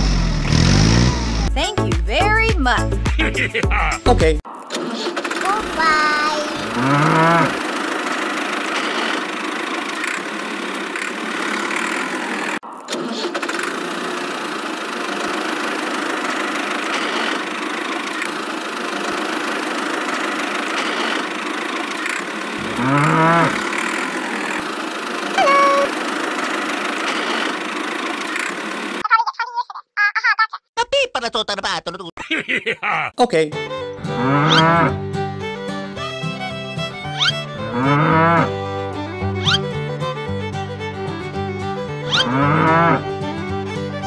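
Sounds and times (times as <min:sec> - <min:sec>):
tractor engine drone: 0:00.0 - 0:02.4, 0:04.7 - 0:29.0, 0:33.6 - 0:44.0
cow mooing: 0:06.6 - 0:07.6, 0:22.6 - 0:23.7, 0:34.1 - 0:35.0, 0:37.7 - 0:38.6, 0:42.1 - 0:43.0.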